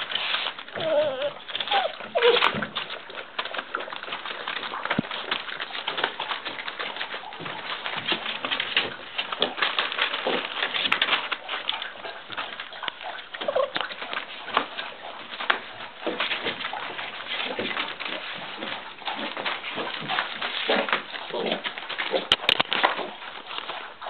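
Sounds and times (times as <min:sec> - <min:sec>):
puppies whining: 0:00.0 - 0:22.4
newspaper crinkling under paws: 0:00.0 - 0:24.0.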